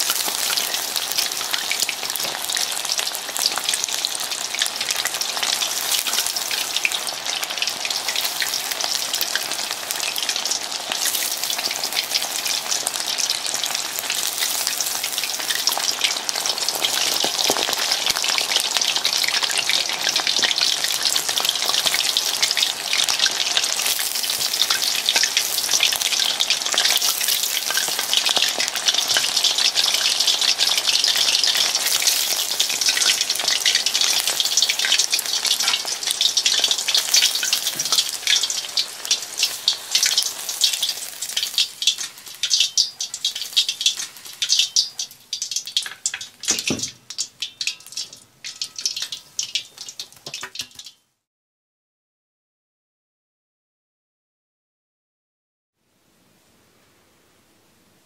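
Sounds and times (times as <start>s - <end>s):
chicken deep-frying in oil: 0.0s - 51.3s.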